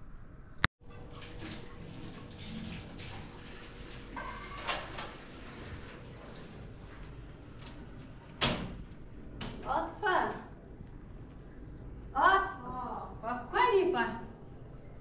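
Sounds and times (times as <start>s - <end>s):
water running in a sink: 0.8s - 7.1s
dishes clattering: 4.1s - 5.2s
dishes clinking: 4.1s - 5.2s.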